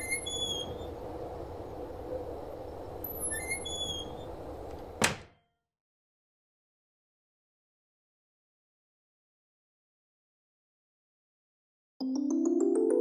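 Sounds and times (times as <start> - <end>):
high chirping: 0.0 - 1.0.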